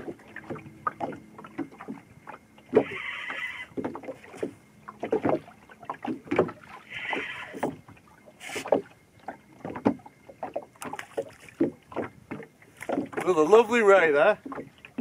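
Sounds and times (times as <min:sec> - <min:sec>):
water slapping against boat hull: 0:00.0 - 0:15.0
fishing reel whirring: 0:02.7 - 0:03.8.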